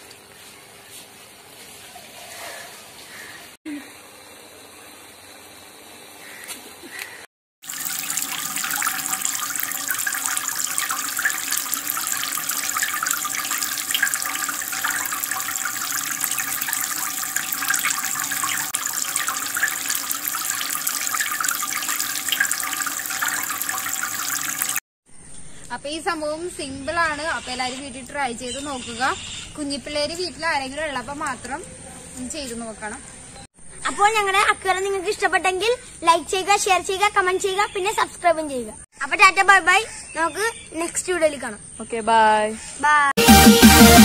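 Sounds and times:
water streams splashing into aquarium: 7.6s - 24.8s.

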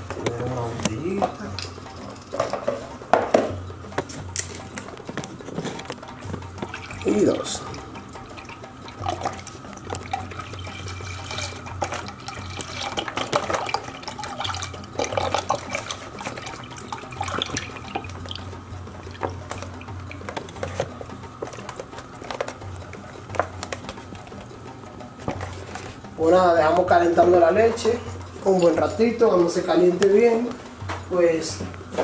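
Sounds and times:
milk pouring into a saucepan: 6.6s - 24.3s.

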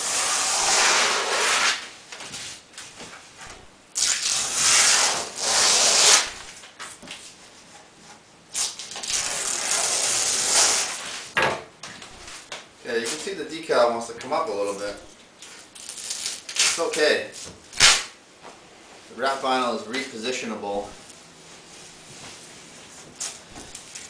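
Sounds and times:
vinyl wrap peeling: 4.0s - 6.5s, 8.5s - 11.3s, 15.5s - 17.0s, 17.8s - 18.1s.

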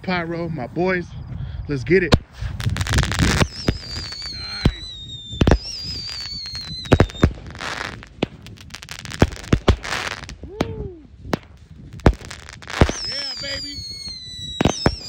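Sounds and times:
firework bangs: 2.1s - 15.0s
firework crackling: 2.1s - 15.0s
falling firework whistle: 2.8s - 10.8s, 12.1s - 15.0s.

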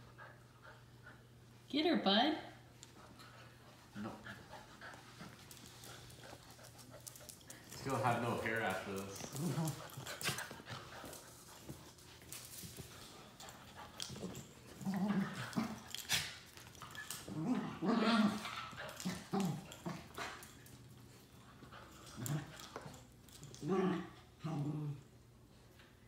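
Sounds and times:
dogs scuffling: 2.8s - 23.7s
dogs growling: 3.9s - 11.6s, 13.2s - 20.8s, 21.6s - 25.4s.

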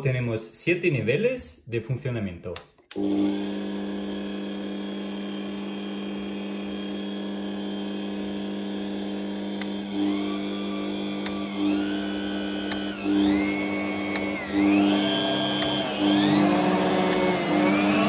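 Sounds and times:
stand mixer motor humming and whining: 3.0s - 18.0s
short clicks: 12.6s - 13.0s, 14.0s - 14.4s, 15.4s - 15.8s.

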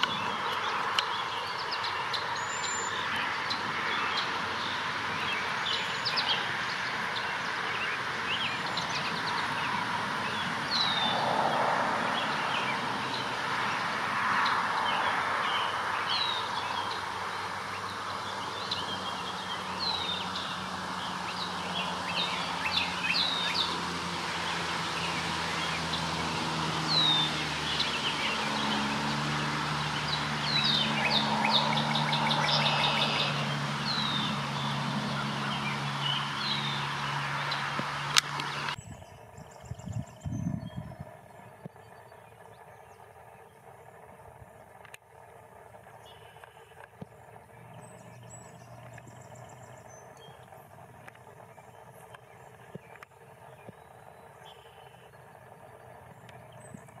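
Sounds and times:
outdoor background hiss: 0.0s - 39.7s
songbirds chirping: 0.0s - 57.0s.

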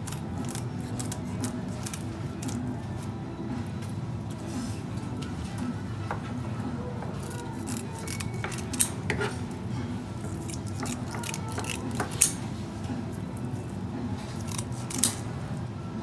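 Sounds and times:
shears snipping: 0.0s - 2.7s, 7.2s - 9.0s, 10.4s - 12.4s, 14.3s - 15.2s.

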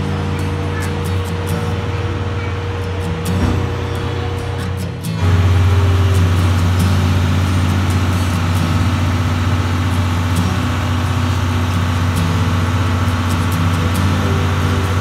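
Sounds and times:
deep train equipment hum: 0.0s - 15.0s.

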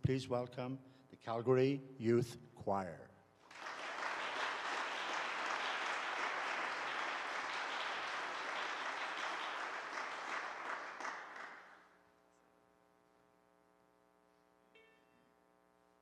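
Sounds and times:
audience applause: 3.5s - 11.9s.

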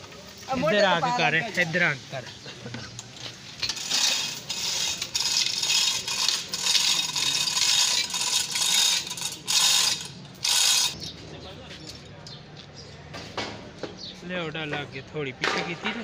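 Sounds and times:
chain hoist chain rattling: 3.0s - 11.1s
ratchet clicking: 3.6s - 11.1s.

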